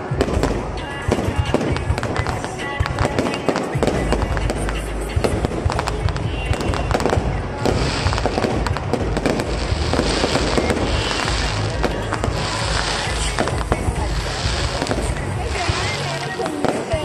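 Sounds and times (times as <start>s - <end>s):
fireworks pops and bangs: 0.0s - 17.0s
high hissing crackle: 0.0s - 17.0s
continuous crackle: 0.2s - 17.0s.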